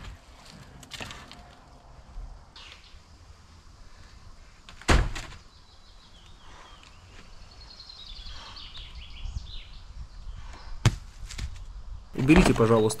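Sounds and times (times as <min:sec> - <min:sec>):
sledgehammer hitting wooden shed: 0:04.9 - 0:05.4, 0:10.8 - 0:11.0.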